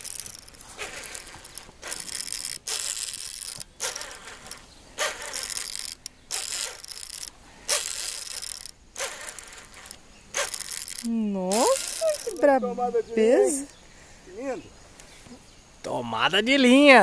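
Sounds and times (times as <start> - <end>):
fishing reel drag buzzing: 0.0 - 12.7.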